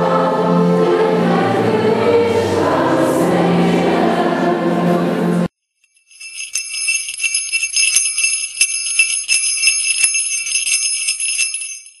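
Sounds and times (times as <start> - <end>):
jingle bells shaken: 5.8 - 12.0.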